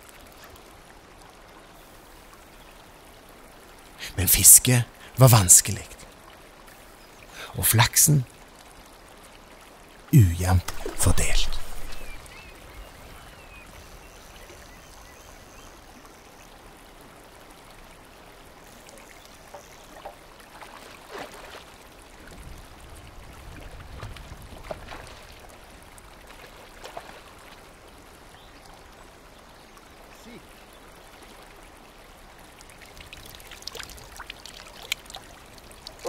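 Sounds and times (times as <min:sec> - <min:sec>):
low wash of water: 0:19.9 - 0:29.2.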